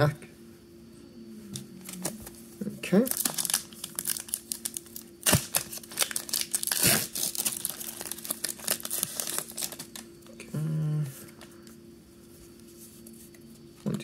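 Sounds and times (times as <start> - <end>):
person humming: 0.9 - 2.4, 10.4 - 11.3
foil wrapper crinkling and tearing: 3.0 - 10.1.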